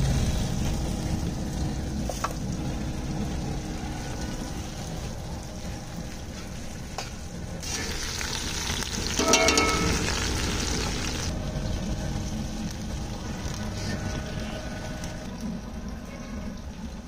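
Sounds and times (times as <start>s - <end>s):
steady low rumble: 0.0s - 7.6s
meat juices sizzling in a pot: 7.6s - 14.0s
short metallic ring: 9.2s - 10.0s.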